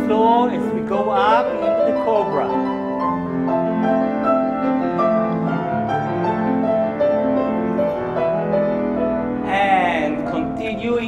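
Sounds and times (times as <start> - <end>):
voice: 0.0 - 2.7, 9.5 - 11.0
slow piano music: 0.0 - 11.0.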